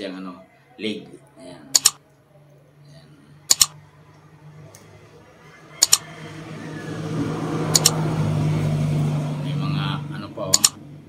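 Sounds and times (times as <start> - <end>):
mouse click sound effects: 1.8 - 2.0, 3.5 - 3.8, 5.8 - 6.0, 7.8 - 8.0, 10.5 - 10.8.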